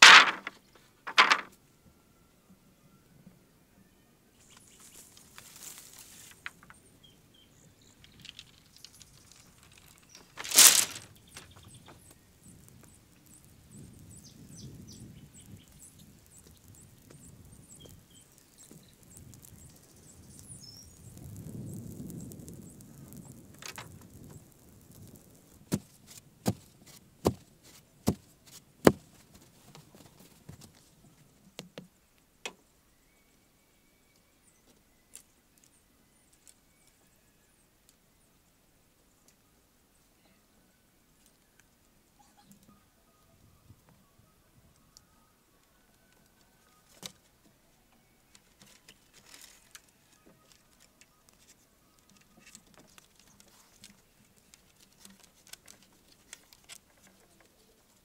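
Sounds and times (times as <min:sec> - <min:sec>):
bamboo poles knocking: 0:00.0 - 0:01.5.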